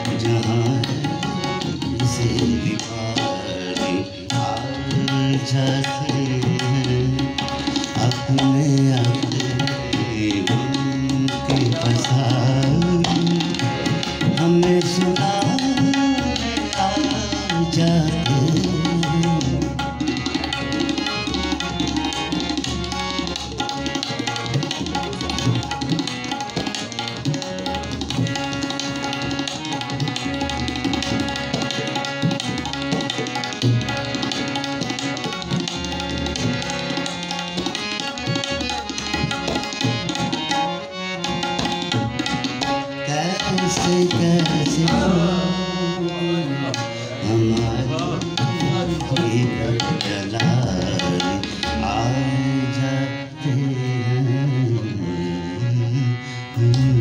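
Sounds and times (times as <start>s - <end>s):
tabla drum rhythm: 0.0s - 53.7s, 56.5s - 57.0s
harmonium melody: 0.0s - 57.0s.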